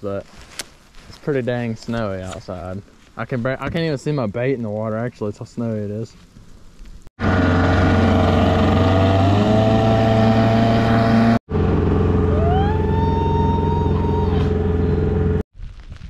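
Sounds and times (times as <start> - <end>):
high motor whine: 7.2 - 15.4
outboard motor running: 7.2 - 15.4.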